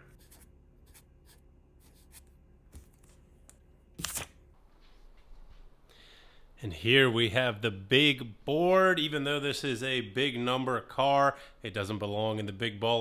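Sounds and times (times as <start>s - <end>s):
marker scratching on paper: 0.0s - 2.3s.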